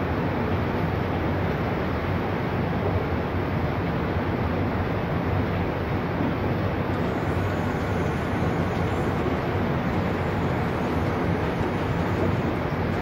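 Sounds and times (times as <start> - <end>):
floodwater rushing: 6.9 - 13.0.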